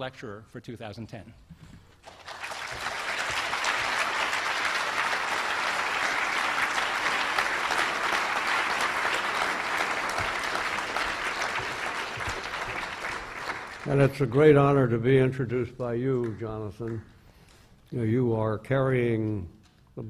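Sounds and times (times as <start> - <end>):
audience applauding: 2.0 - 14.8, 16.1 - 17.1.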